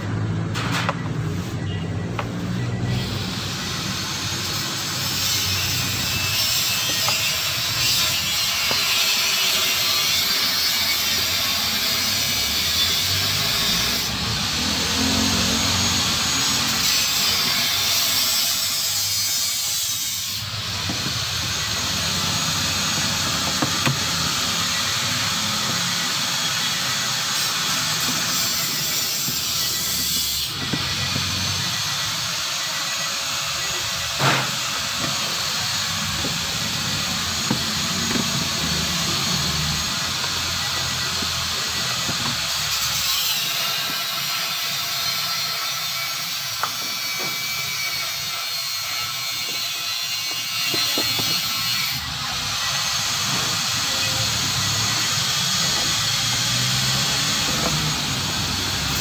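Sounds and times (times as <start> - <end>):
motor running: 20.4 - 49.6.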